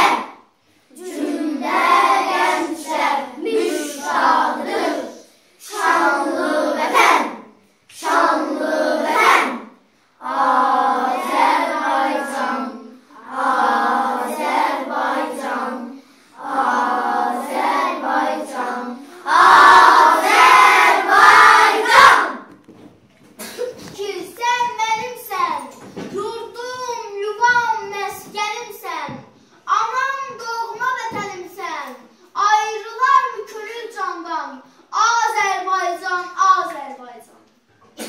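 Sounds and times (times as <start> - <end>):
children singing unaccompanied: 0.0 - 22.5.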